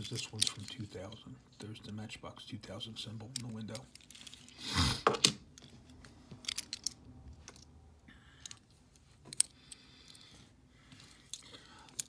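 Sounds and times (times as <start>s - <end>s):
toy cars clicking: 0.0s - 0.9s, 3.2s - 4.6s, 6.4s - 7.7s, 11.3s - 12.0s.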